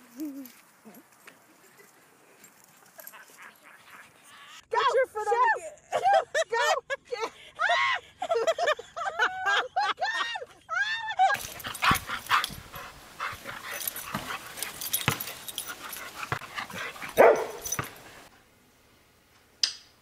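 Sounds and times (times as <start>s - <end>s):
knocks and scuffs: 11.4s - 18.2s.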